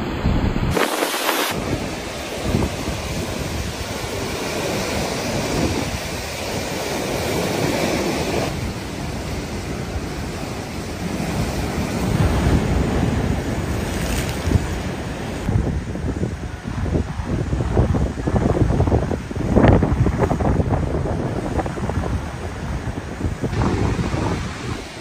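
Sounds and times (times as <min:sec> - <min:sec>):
heavy surf breaking over rocks: 0:00.0 - 0:25.0.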